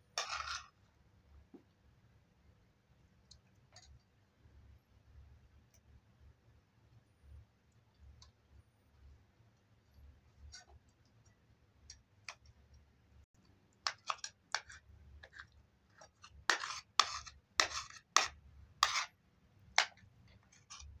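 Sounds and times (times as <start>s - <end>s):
metal spoon scraping dishes: 0.2s - 0.8s, 13.8s - 19.1s.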